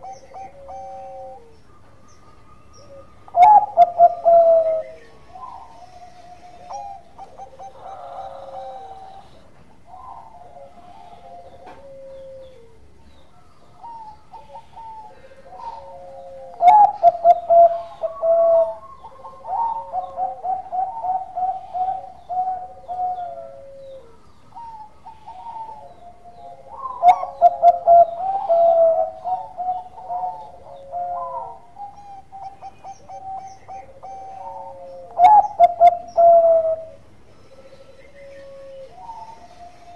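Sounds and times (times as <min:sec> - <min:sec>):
dove song with fast notes: 0:00.0 - 0:39.9
low falling dove coo: 0:00.0 - 0:39.9.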